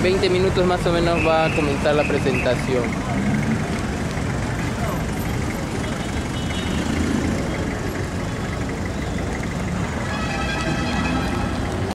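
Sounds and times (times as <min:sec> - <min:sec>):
street traffic rumble: 0:00.0 - 0:11.9
engine running: 0:02.6 - 0:11.9.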